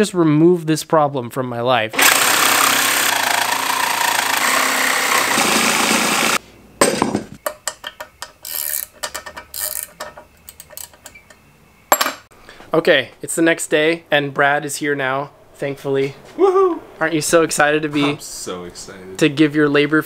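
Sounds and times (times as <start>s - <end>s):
reciprocating saw cutting cast iron: 2.0s - 6.4s
wrench clicking on nuts: 7.4s - 11.4s.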